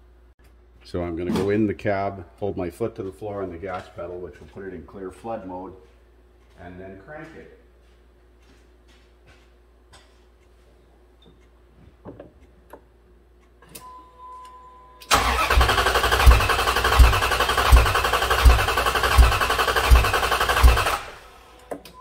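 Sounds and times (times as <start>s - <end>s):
starter cranking engine: 15.1s - 21.4s.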